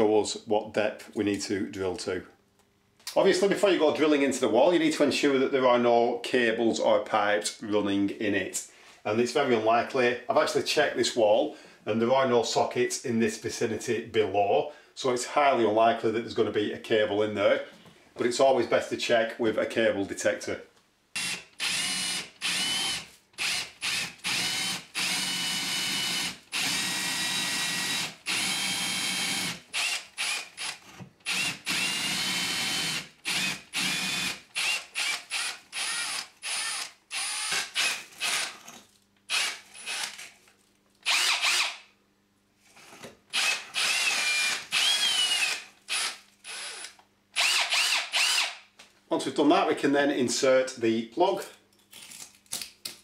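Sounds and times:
cordless drill boring into wall: 21.2 - 40.3, 41.0 - 41.8, 42.8 - 48.6.

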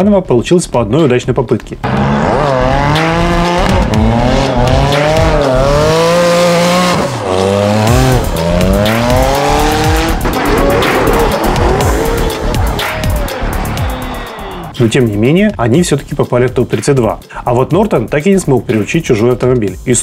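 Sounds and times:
car engines revving hard: 1.8 - 14.8.

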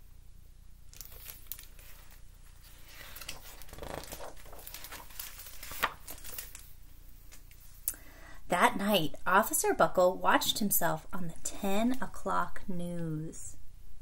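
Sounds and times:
paper pages rustling and turning: 0.9 - 7.7.

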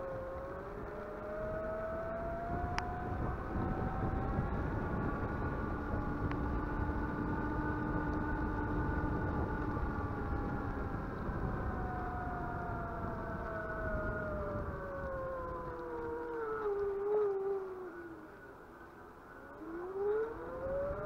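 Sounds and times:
continuous low rumble: 0.0 - 21.0.

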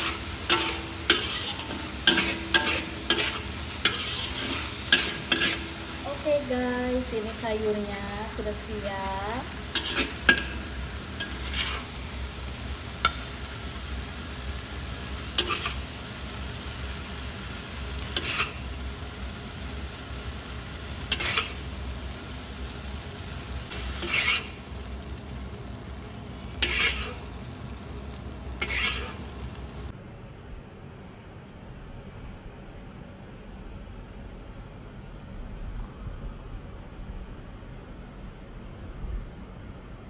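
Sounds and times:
spatula scraping a pan: 0.0 - 6.2, 9.4 - 14.2, 15.0 - 16.4, 17.4 - 18.8, 21.0 - 21.8, 23.7 - 25.0, 26.5 - 27.5, 28.5 - 29.8
food sizzling in a wok: 0.0 - 30.0.

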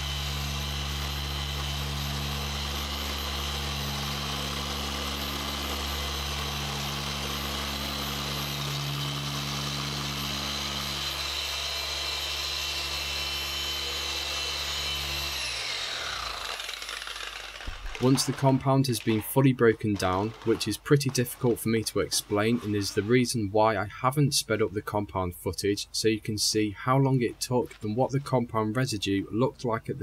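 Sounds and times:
machine polisher motor whine: 0.0 - 19.4
polisher spinning down: 0.0 - 19.4, 20.0 - 23.1.

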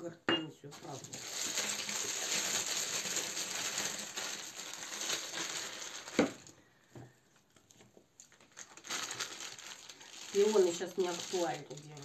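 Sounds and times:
plastic bag crinkling: 0.7 - 12.0.

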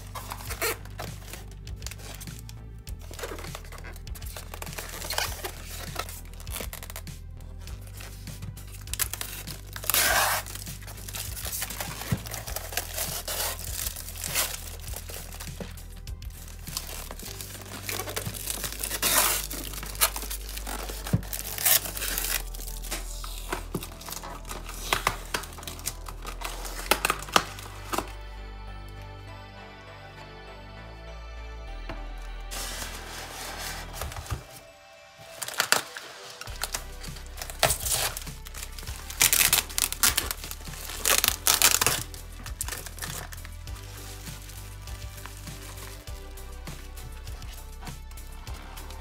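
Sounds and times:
packing tape ripping off foam box: 0.0 - 7.1, 7.8 - 28.2, 35.2 - 46.2
plastic crinkling: 0.0 - 7.1, 7.7 - 28.2, 32.5 - 46.2
background music: 0.0 - 49.0.

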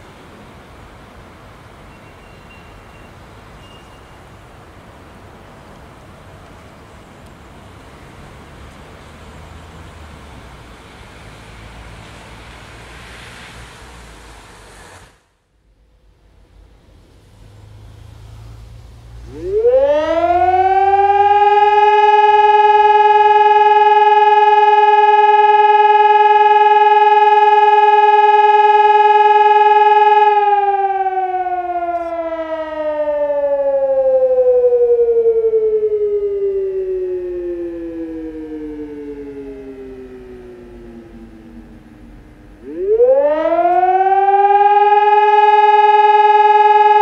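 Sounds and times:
electronic siren tone: 19.2 - 47.0.

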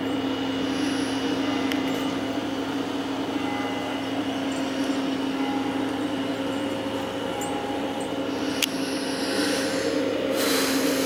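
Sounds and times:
engine running steadily: 0.0 - 11.0.

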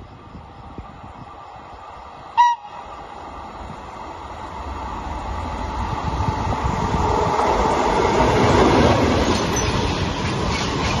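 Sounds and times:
freight train rumbling past: 0.0 - 11.0.

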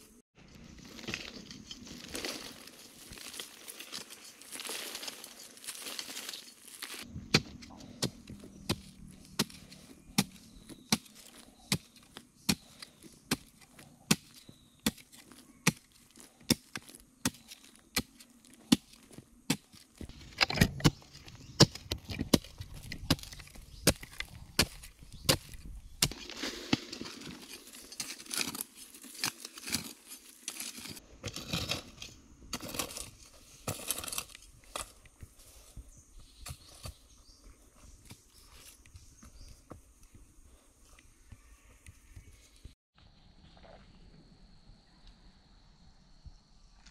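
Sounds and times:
loose soil scraping: 0.0 - 42.8
hoe chopping into earth: 6.8 - 31.9.

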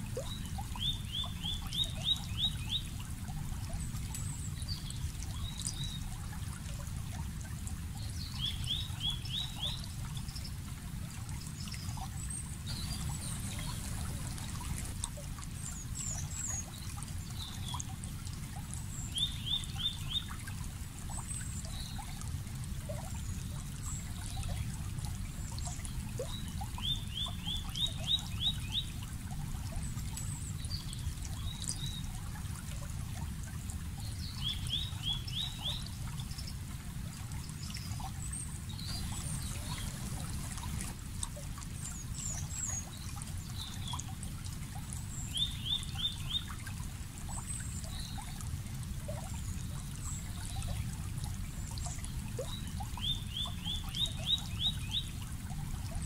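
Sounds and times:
stream running water: 0.0 - 56.0
high bird chirps: 12.7 - 14.8, 38.9 - 40.8.

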